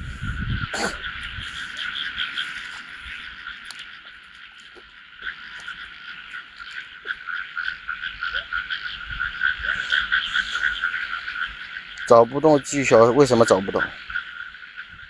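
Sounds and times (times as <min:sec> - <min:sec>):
chorus of frogs croaking: 0:00.0 - 0:15.0.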